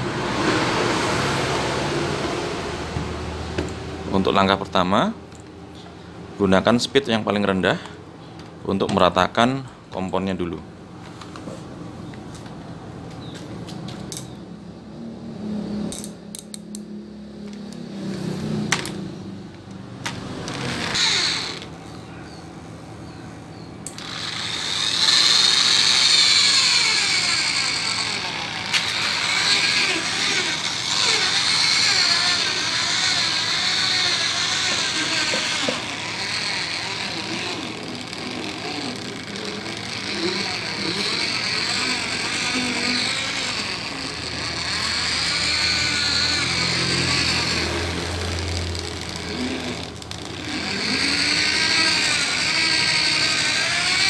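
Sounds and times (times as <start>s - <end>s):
electric polishing machine running: 0.0s - 4.0s, 20.0s - 54.0s.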